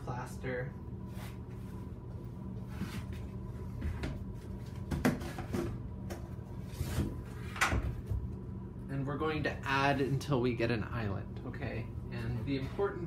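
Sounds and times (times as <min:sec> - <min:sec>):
ventilation fan humming: 0:00.0 - 0:13.0.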